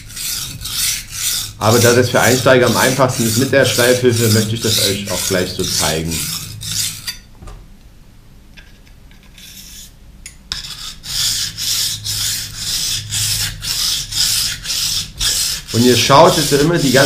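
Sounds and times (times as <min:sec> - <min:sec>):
knife grinding on wet whetstone: 0:00.0 - 0:07.3, 0:09.4 - 0:17.0.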